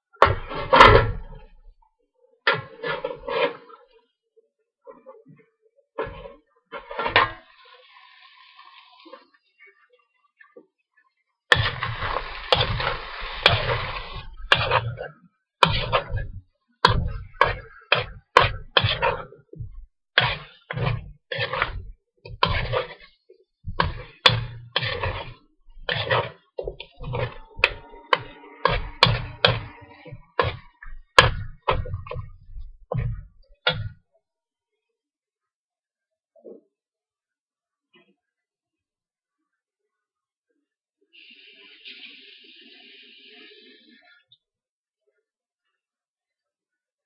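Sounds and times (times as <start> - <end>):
metal spoon scraping a wok: 2.7 - 3.8, 11.6 - 19.3, 20.2 - 32.3.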